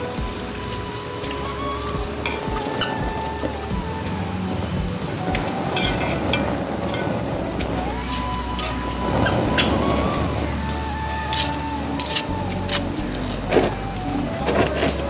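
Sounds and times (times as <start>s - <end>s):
chips sizzling in hot oil: 10.7s - 12.9s.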